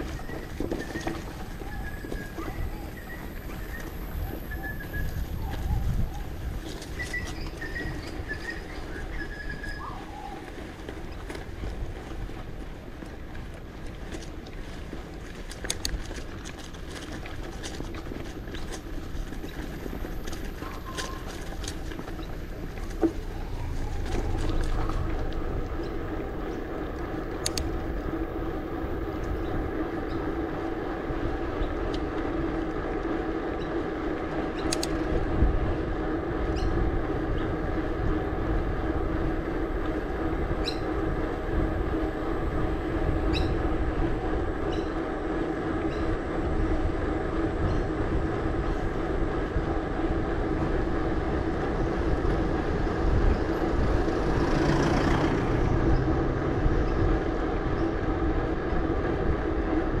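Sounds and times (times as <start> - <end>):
bike tyres humming on pavement: 0.0 - 60.0
bike clicks and rattles: 10.4 - 35.4.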